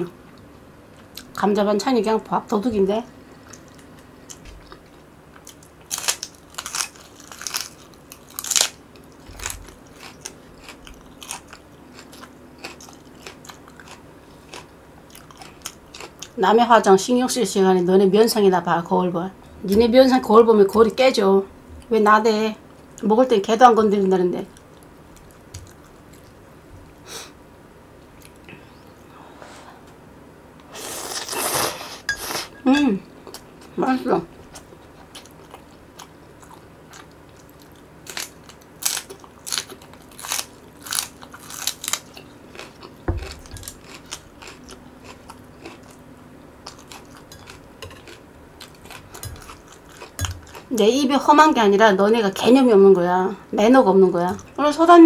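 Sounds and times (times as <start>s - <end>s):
chewing: 3.4s - 16.4s, 34.5s - 46.0s, 46.6s - 50.8s
teeth crunching green onion: 3.5s - 16.4s, 34.5s - 46.0s, 46.6s - 50.8s.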